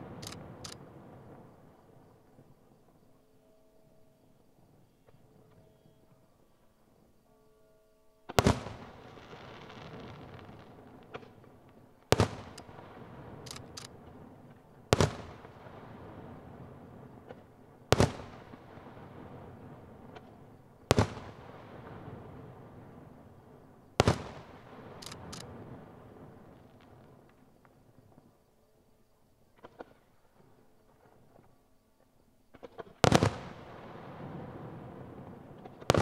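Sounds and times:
firework shells bursting: 0.0s - 0.9s, 8.3s - 15.6s, 24.0s - 25.6s
faint firework crackles: 0.0s - 3.2s, 8.3s - 36.0s.

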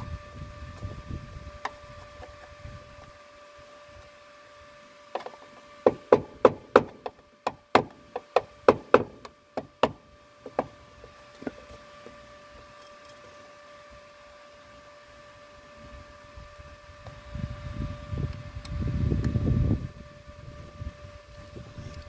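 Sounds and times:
sharp metal knocks: 5.2s - 10.7s.

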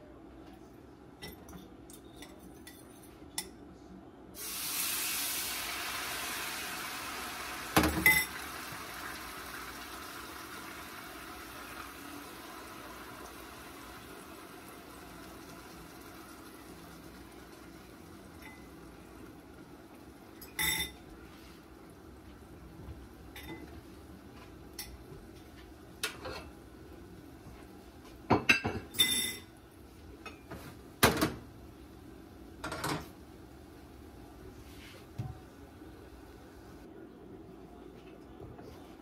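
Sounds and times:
dishes and utensils clinking: 1.2s - 3.6s, 7.8s - 8.4s, 20.4s - 21.1s, 23.3s - 23.7s, 26.0s - 26.5s, 28.3s - 29.5s, 32.6s - 33.1s.

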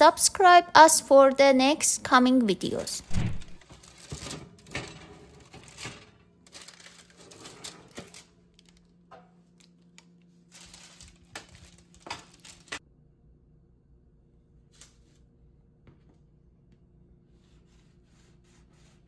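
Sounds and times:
low steady hum: 0.0s - 19.0s
baking tray clicking and crinkling: 3.6s - 12.8s.

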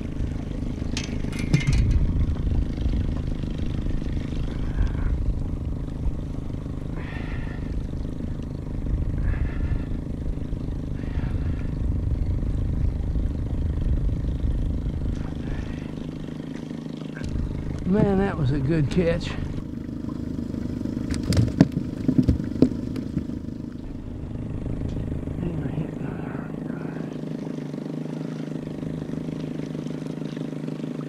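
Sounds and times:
boat motor humming: 0.0s - 31.0s
short clatter: 0.9s - 2.2s.

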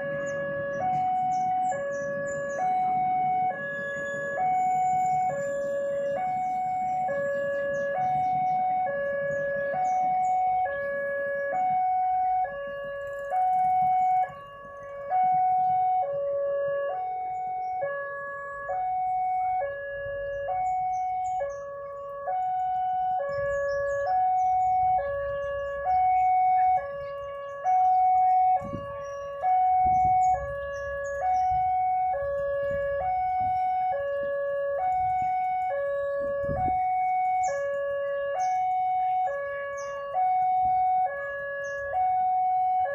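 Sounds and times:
idling traffic rumble: 0.0s - 42.9s
two-tone crossing alarm: 0.0s - 42.9s.

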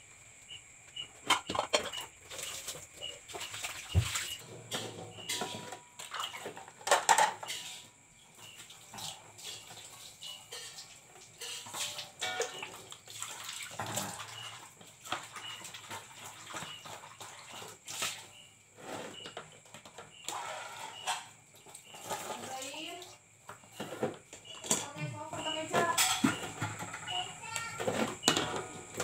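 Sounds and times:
plates and bowls clinking: 1.2s - 2.6s, 3.3s - 7.9s, 9.5s - 12.8s, 13.8s - 14.5s, 23.8s - 29.0s
water splashing into a bucket: 1.4s - 4.4s, 8.6s - 18.4s.

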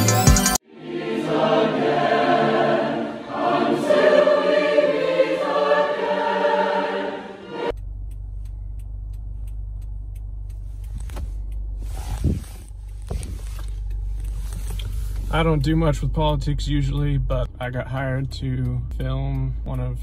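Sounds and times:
choir singing: 0.0s - 7.7s
car cabin rumble: 7.8s - 20.0s.

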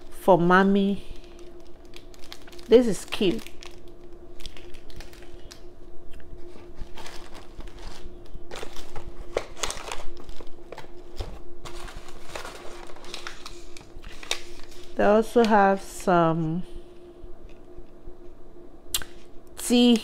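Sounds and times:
plastic wrap crinkling: 0.0s - 15.4s
faint steady hum: 0.0s - 20.0s
rummaging in cardboard box: 6.4s - 15.0s
tissue paper rustling: 6.4s - 15.0s.

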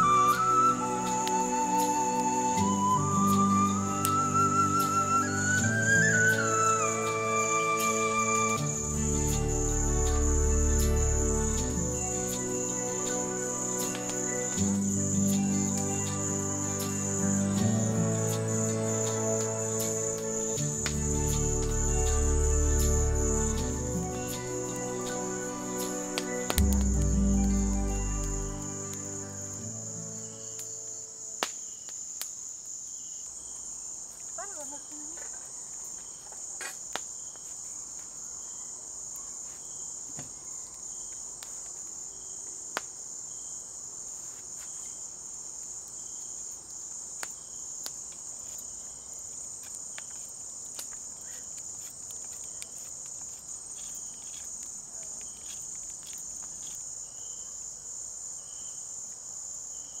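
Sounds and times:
crickets trilling: 0.0s - 60.0s
wood fire popping and clicking: 13.8s - 14.7s, 18.6s - 22.1s, 25.8s - 29.1s, 46.4s - 56.8s.

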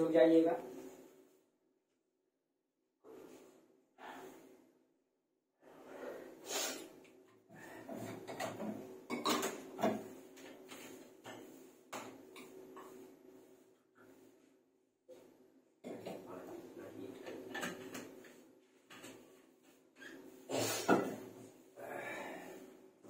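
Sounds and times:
objects clattering and knocking: 7.7s - 13.0s, 15.8s - 19.4s.

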